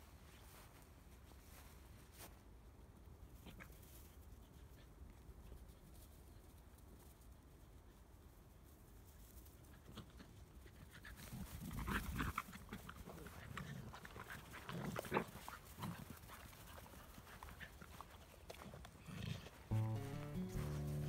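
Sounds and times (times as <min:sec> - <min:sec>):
scuffing on dry grass: 0:00.1 - 0:02.4, 0:15.3 - 0:21.0.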